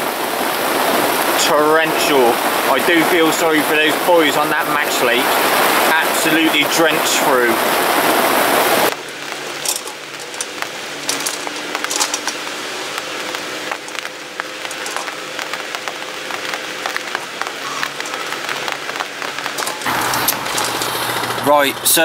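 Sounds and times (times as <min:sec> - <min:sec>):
heavy rain: 0:00.0 - 0:22.0
excavator engine hum: 0:07.7 - 0:22.0
bucket clicking through rubble: 0:09.6 - 0:12.4, 0:14.7 - 0:15.2, 0:19.5 - 0:21.4.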